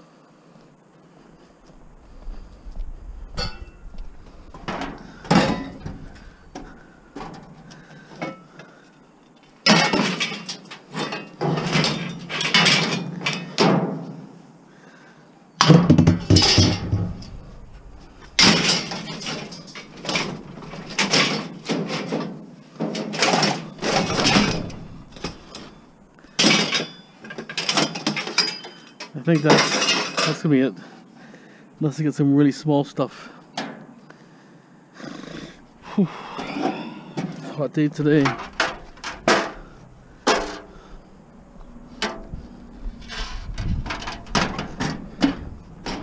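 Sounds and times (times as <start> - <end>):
scrap metal clattering into bin: 4.6 - 7.6, 9.6 - 13.9, 15.6 - 25.8, 26.4 - 30.5, 43.0 - 46.0.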